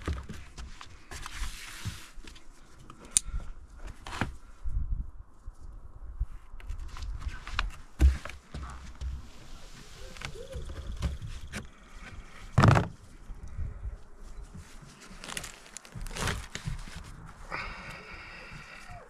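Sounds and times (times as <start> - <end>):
fur rustling on cardboard: 0.0 - 2.8, 6.8 - 13.2, 14.2 - 17.5.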